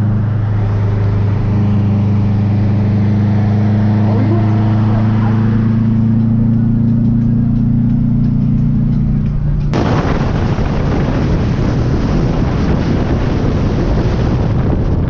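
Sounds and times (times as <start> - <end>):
car engine drone: 0.0 - 15.0
wind buffeting on microphone: 9.7 - 15.0.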